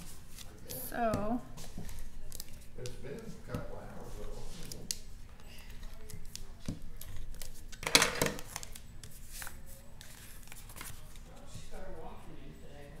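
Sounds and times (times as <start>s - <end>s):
paper rustling: 4.0s - 11.6s.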